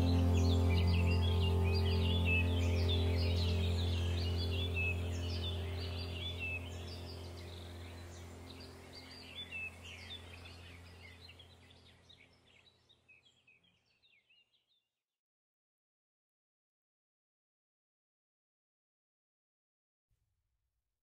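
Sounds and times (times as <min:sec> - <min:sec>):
low steady drone: 0:00.0 - 0:12.1
birds chirping: 0:00.0 - 0:14.6.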